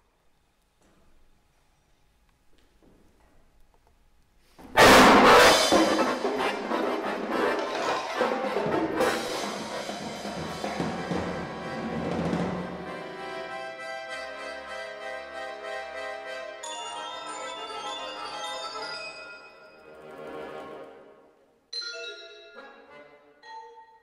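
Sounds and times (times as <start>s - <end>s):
drums and cymbals crash: 4.7s - 6.8s, 7.5s - 12.9s
accordion chords: 4.8s - 24.0s.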